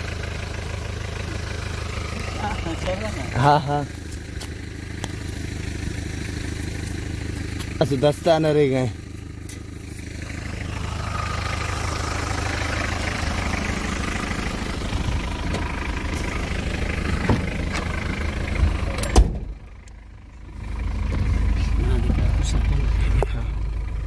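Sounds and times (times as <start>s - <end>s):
vehicle engine idling: 0.0s - 24.0s
car door slamming: 17.2s - 17.9s, 19.0s - 19.6s.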